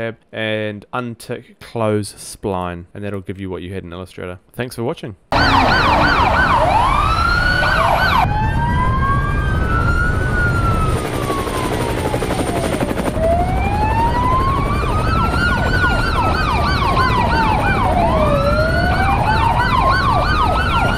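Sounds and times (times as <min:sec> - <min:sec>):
siren wailing: 0:05.3 - 0:20.9
siren yelping: 0:05.3 - 0:20.9.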